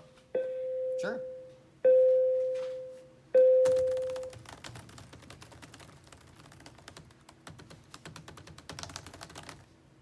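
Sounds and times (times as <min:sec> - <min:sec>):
typing on laptop keyboard: 0:03.6 - 0:09.7.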